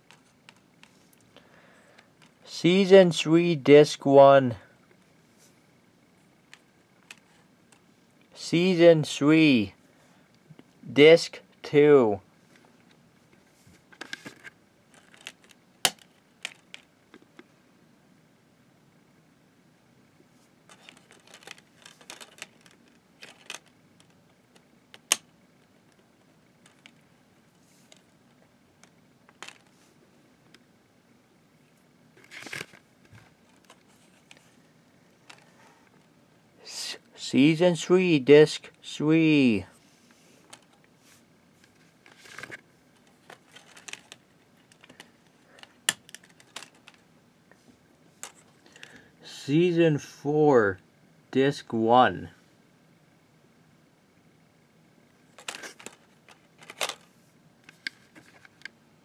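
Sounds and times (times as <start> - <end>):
plastic case clicks and rustles: 13.9 - 17.4, 20.7 - 25.3, 29.3 - 29.7, 41.7 - 47.0, 55.3 - 57.1.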